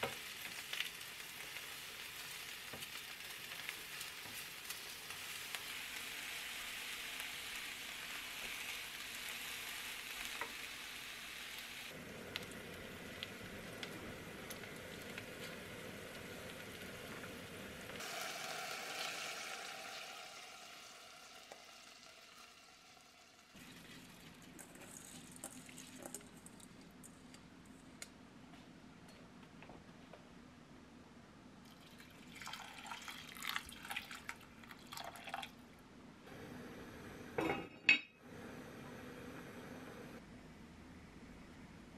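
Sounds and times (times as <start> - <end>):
food sizzling in hot oil: 0.0 - 26.2.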